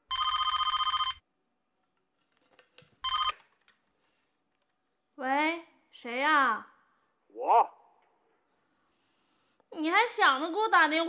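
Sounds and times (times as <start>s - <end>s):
telephone ringing electronic trill: 0.1s - 1.2s, 3.1s - 3.3s.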